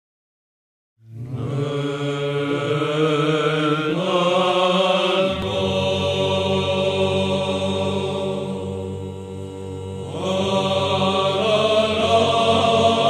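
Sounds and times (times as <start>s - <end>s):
held low vocal drone: 1.0s - 13.0s
men's choir chanting: 1.2s - 13.0s.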